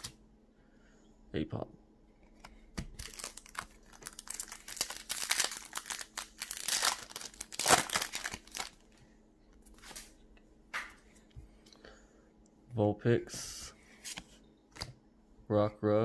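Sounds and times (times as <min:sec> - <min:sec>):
foil wrapper crinkling: 0:02.9 - 0:08.9.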